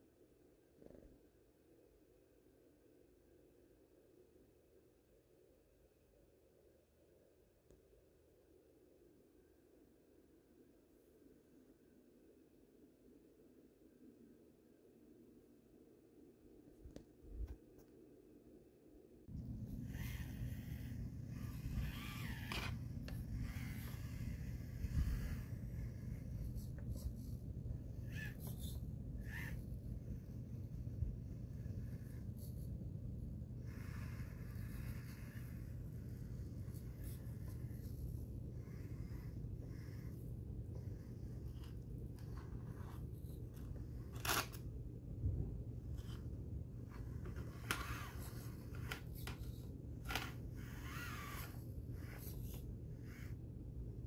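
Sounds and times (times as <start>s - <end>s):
small electric motor whining: 19.3s - 44.6s, 45.9s - 53.4s.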